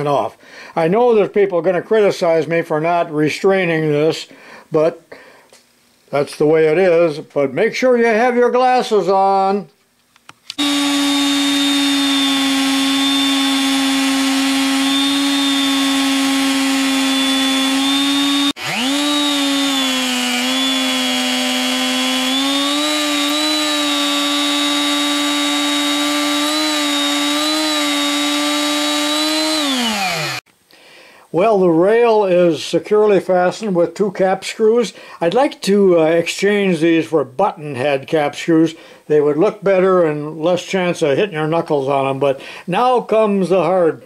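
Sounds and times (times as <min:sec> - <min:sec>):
drill press motor drilling: 0:10.6 - 0:30.4.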